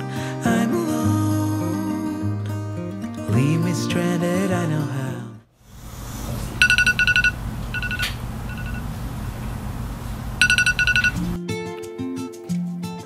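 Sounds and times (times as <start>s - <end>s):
low steady hum: 5.6s - 11.4s
phone alarm beeping: 5.8s - 11.4s.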